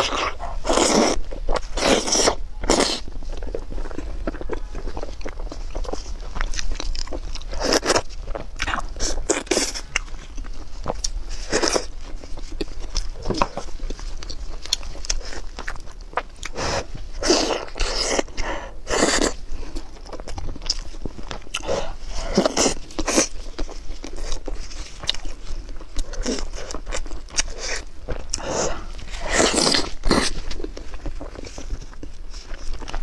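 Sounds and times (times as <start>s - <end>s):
wet chewing and mouth sounds: 0.0s - 33.0s.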